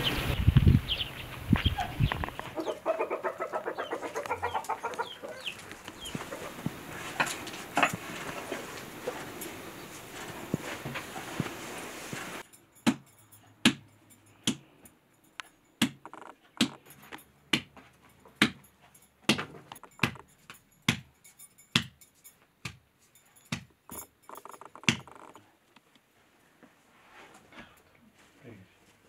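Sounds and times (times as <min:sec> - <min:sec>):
steady hiss: 0:06.5 - 0:12.4.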